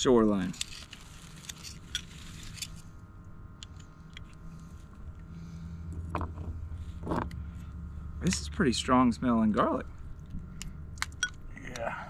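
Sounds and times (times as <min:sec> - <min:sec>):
small handling clicks and scrapes: 0:00.4 - 0:03.0
low engine hum: 0:02.8 - 0:12.0.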